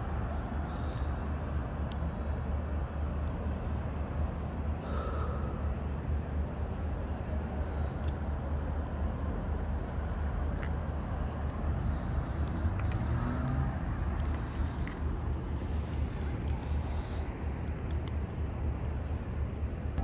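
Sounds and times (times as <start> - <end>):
traffic rumble: 0.0 - 20.0
faint clicks: 1.8 - 2.1, 16.2 - 20.0.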